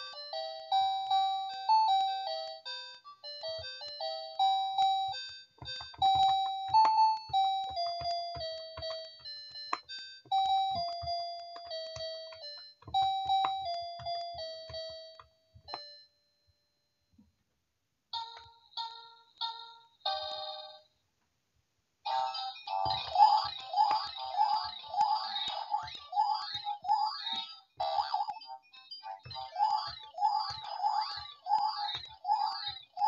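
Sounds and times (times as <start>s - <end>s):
toy piano beeping melody: 0.0s - 16.2s, 22.1s - 33.0s
ringtone-like chime: 0.0s - 17.1s, 18.2s - 20.9s, 22.1s - 33.0s.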